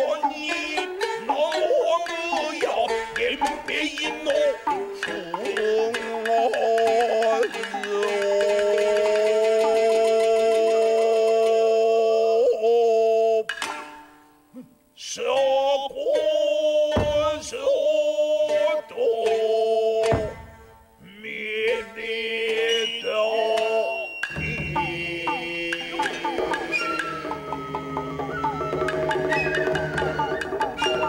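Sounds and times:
shamisen plucks: 0:00.0 - 0:12.6, 0:13.3 - 0:14.5, 0:15.2 - 0:31.0
man chanting long held notes: 0:00.0 - 0:13.5, 0:21.4 - 0:31.0.

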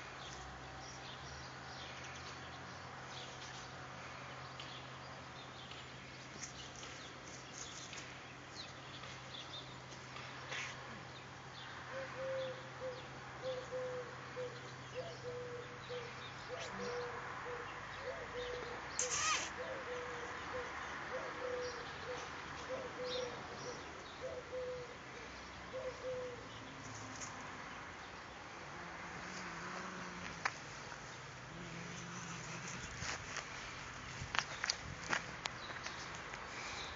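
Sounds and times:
bird calling low short notes: 0:19.0 - 0:19.6.

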